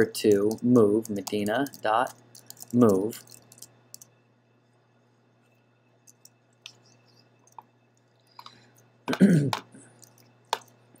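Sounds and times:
computer mouse clicks: 0:00.3 - 0:04.1, 0:06.0 - 0:07.7, 0:09.5 - 0:10.8
person chuckling: 0:09.1 - 0:09.7.

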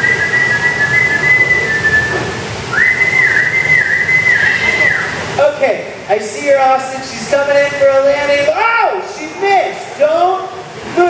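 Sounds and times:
long high whistles: 0:00.0 - 0:05.2.

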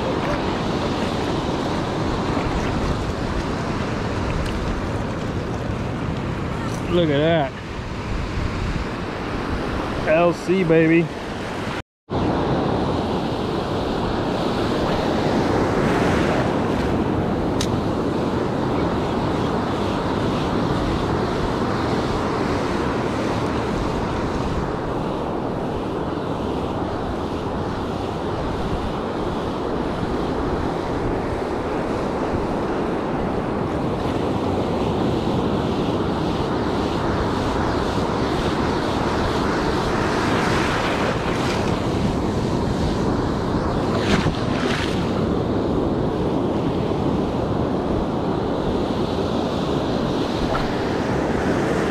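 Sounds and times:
wind buffeting microphone: 0:00.0 - 0:10.0
ocean surf breaking: 0:00.0 - 0:11.8, 0:12.4 - 0:51.9.

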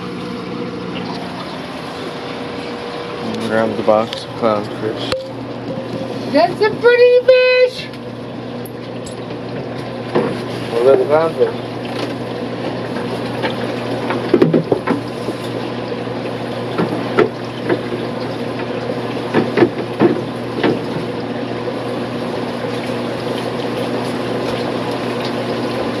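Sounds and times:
fish tank pumps humming: 0:00.0 - 0:26.0
knocks and splashes at tank: 0:09.0 - 0:10.7, 0:11.4 - 0:26.0.

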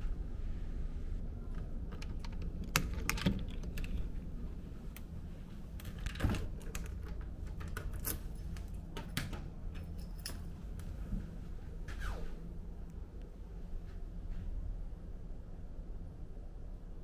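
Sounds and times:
steady low hum: 0:00.0 - 0:17.0
key turning in lock: 0:01.9 - 0:04.1, 0:05.8 - 0:10.5
door opening: 0:05.8 - 0:10.5
key ring jangling: 0:07.7 - 0:10.6.

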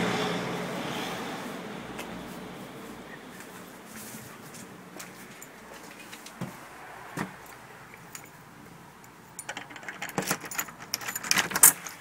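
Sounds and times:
keys jingling at a door lock: 0:07.4 - 0:08.4, 0:09.0 - 0:12.0.

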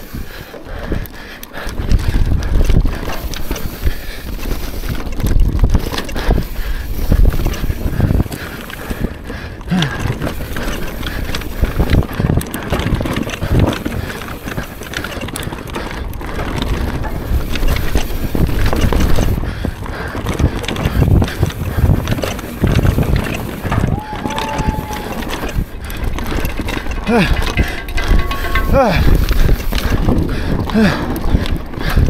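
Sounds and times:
mountain bike rattling and thudding: 0:00.0 - 0:32.0
wind buffeting microphone: 0:00.0 - 0:32.0.

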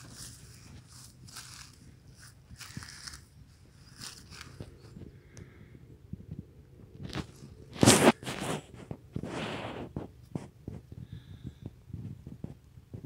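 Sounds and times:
short rustling scraping noises: 0:00.0 - 0:05.0, 0:07.0 - 0:10.9.

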